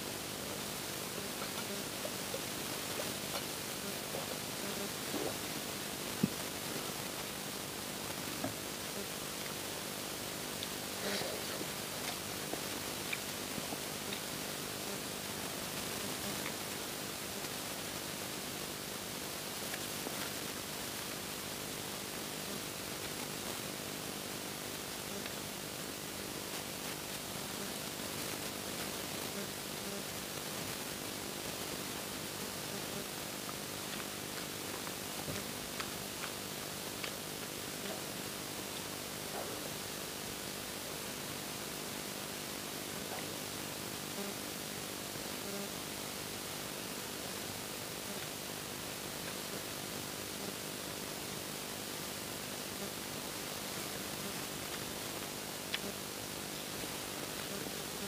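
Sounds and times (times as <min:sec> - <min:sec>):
rain falling hiss: 0:00.0 - 0:58.0
soft chewing sounds: 0:00.4 - 0:18.2, 0:25.1 - 0:41.0, 0:53.8 - 0:58.0
faint ticks: 0:32.8 - 0:38.1, 0:54.2 - 0:56.0.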